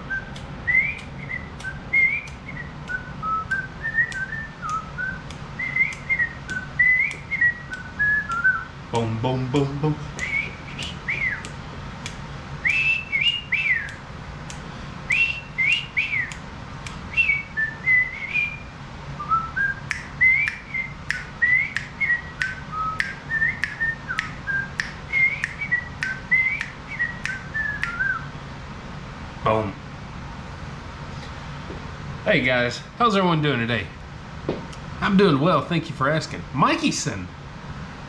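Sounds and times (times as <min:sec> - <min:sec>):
man whistling a tune: 0:00.1 - 0:08.7, 0:09.6 - 0:11.5, 0:12.6 - 0:14.0, 0:15.1 - 0:16.4, 0:17.1 - 0:28.3
sharp clicks: 0:00.3 - 0:12.2.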